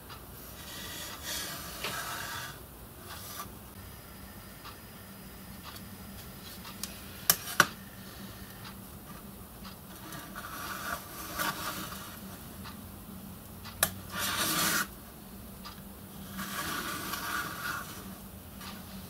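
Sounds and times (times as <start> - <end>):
pencil scratching on metal: 0.6 - 3.5, 9.9 - 12.2, 14.1 - 14.9, 16.2 - 18.1.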